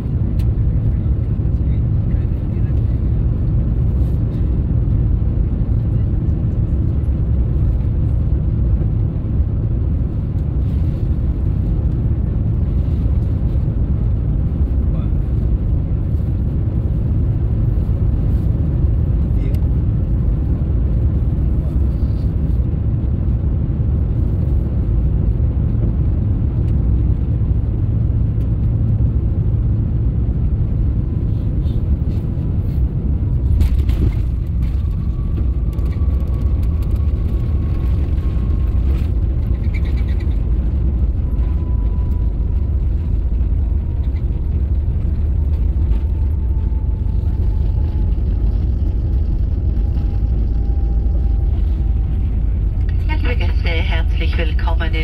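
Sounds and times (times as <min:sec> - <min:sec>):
airplane cabin rumble: 0:00.0 - 0:55.0
faint falling whine: 0:33.4 - 0:55.0.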